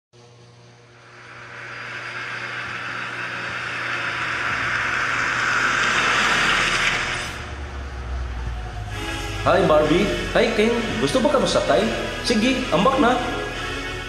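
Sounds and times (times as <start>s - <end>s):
rushing noise: 0.9s - 13.9s.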